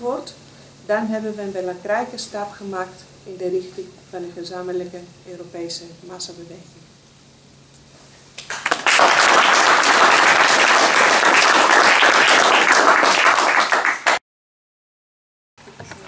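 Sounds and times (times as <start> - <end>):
audience applauding: 8.4 - 14.2.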